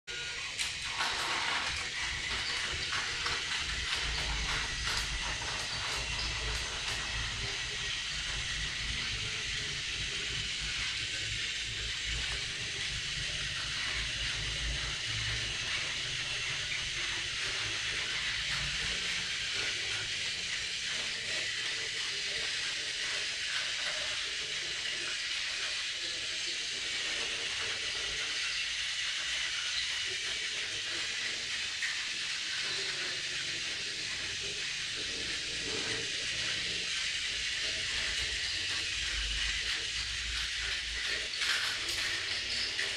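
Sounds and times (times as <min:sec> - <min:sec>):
toy train motors whirring: 0:00.1 - 0:42.9
wheels rattling on plastic rails: 0:00.1 - 0:42.9.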